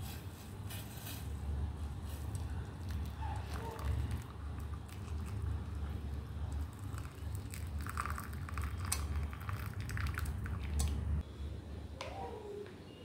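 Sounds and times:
liquid pouring and splashing: 2.8s - 11.0s.

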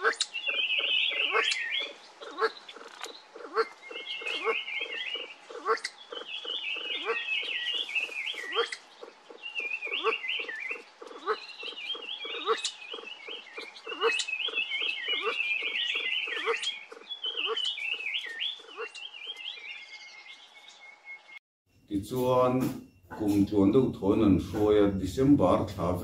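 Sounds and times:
pheasants clucking: 0.0s - 19.8s
birds twittering: 0.0s - 26.0s.

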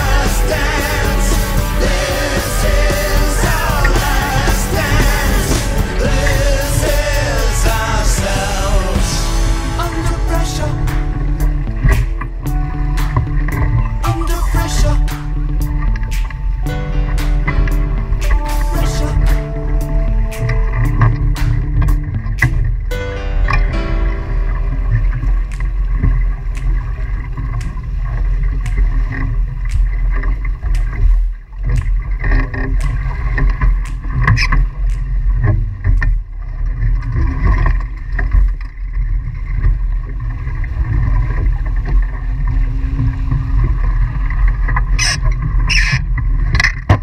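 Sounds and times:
loud splashes: 0.0s - 15.4s
rushing water: 0.0s - 46.8s
wind rumble on microphone: 0.0s - 47.0s
sharp ticks: 24.8s - 38.6s.

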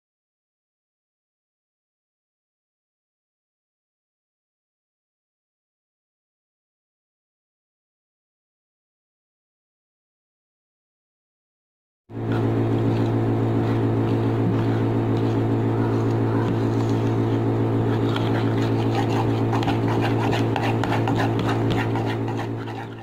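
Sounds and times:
loud steady low hum: 12.1s - 23.0s
metal utensil scraping in bowl: 16.1s - 23.0s.

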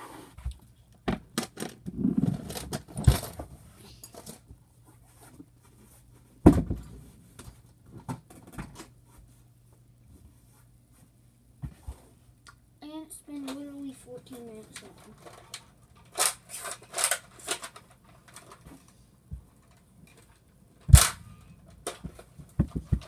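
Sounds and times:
metal box knocking and clattering: 20.9s - 23.0s.

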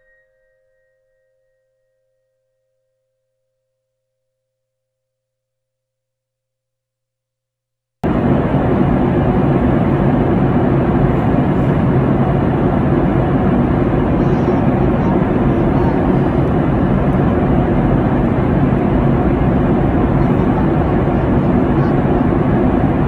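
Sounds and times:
airliner cabin jet engine rush: 8.0s - 23.0s
low hum: 8.0s - 23.0s.

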